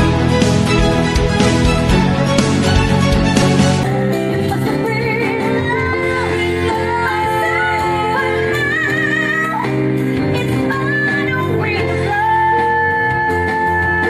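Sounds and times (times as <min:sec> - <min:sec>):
live pop band playing: 0:00.0 - 0:14.0
woman singing: 0:03.8 - 0:14.0.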